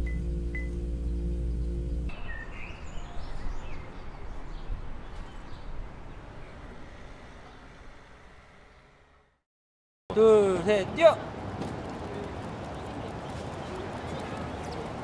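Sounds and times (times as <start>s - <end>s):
bird chirps: 0.0s - 5.8s.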